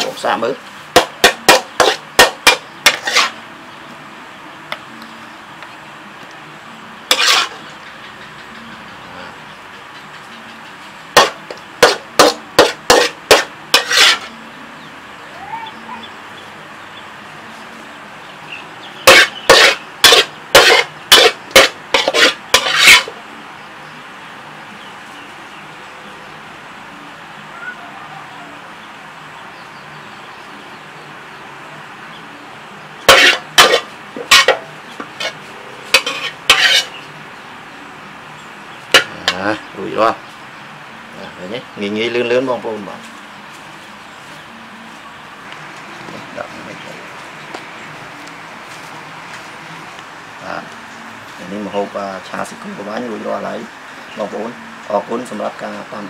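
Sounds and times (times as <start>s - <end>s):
metal spatula scraping a wok: 0.9s - 3.5s, 7.1s - 7.8s, 11.1s - 14.4s, 19.0s - 23.2s, 33.0s - 37.1s
metal spatula knocking on wok: 1.0s - 3.0s.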